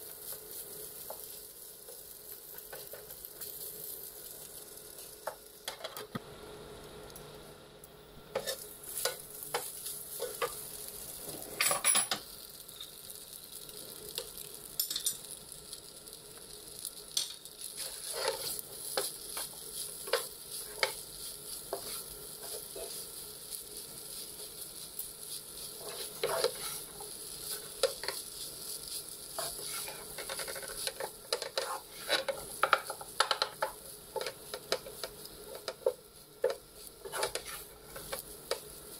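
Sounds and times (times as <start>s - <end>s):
rice sizzling in a pan: 0.0s - 38.9s
spatula stirring and scraping: 8.3s - 11.6s, 17.6s - 38.9s.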